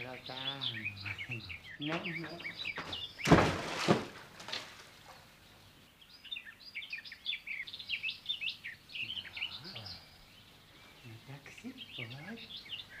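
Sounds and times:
small birds chirping: 0.0 - 13.0
water splashing: 3.2 - 4.9.

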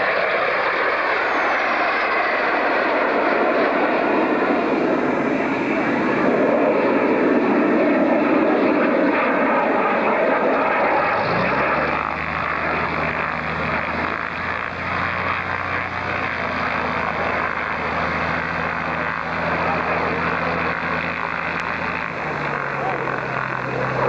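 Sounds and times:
aircraft passing overhead: 0.0 - 24.0
steady low engine hum: 10.6 - 24.0.

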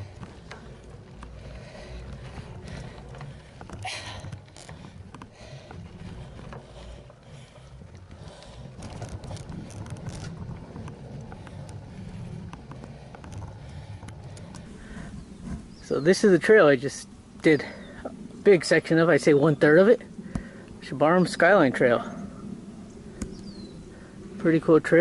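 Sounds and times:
small clicks and rattles: 0.0 - 15.0
bike tyres rumbling on dirt: 0.0 - 22.2.

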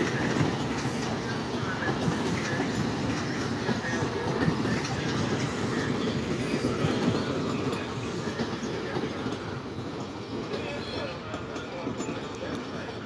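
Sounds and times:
train wheels rumbling over rails: 0.0 - 13.0.

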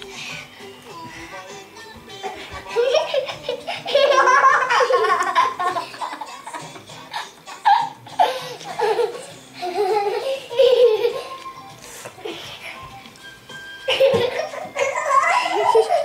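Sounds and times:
music playing: 0.0 - 16.0
little girl giggling: 13.9 - 16.0.

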